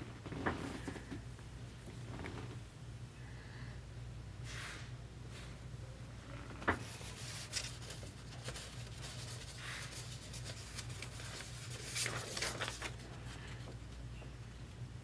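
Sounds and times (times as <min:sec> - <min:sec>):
cards and holders rustling: 0:06.8 - 0:14.0.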